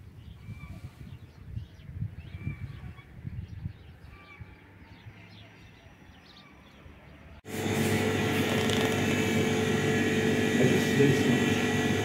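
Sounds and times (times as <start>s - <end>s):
freezer cabinets humming: 7.5s - 12.0s.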